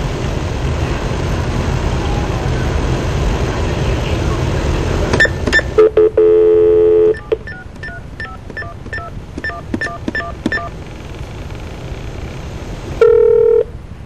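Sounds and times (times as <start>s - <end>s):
touch-tone beeps: 5.2s - 10.8s, 13.0s - 13.7s
telephone dial tone: 5.2s - 11.2s, 13.0s - 13.7s
faint phone line hiss: 5.2s - 13.8s.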